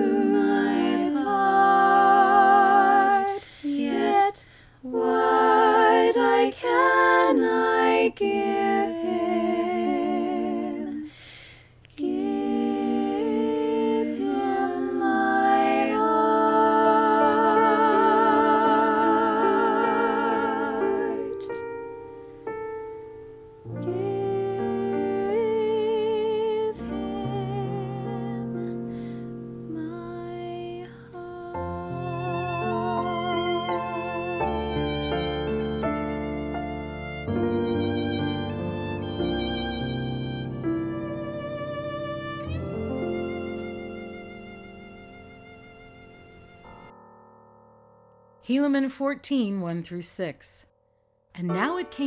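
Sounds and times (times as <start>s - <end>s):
person singing a carol: 0.0s - 11.2s, 11.9s - 21.7s, 23.7s - 29.1s, 29.7s - 36.2s
lower accompaniment: 12.0s - 49.0s.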